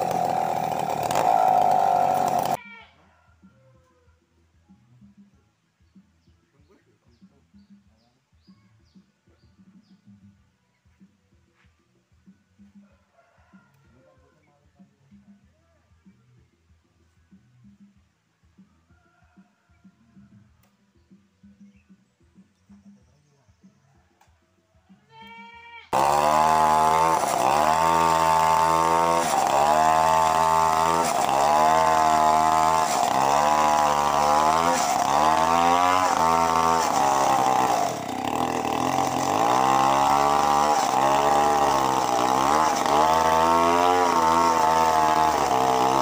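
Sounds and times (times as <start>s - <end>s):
chainsaw cutting into log: 0.0s - 2.6s, 26.0s - 46.0s.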